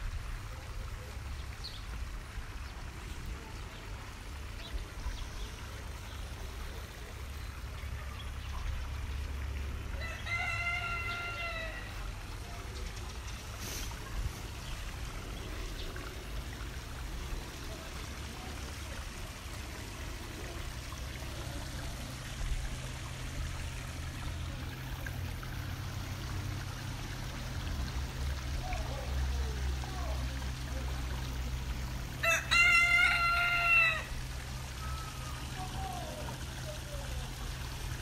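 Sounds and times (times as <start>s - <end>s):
rooster crowing: 10.0s - 12.0s, 32.2s - 34.1s.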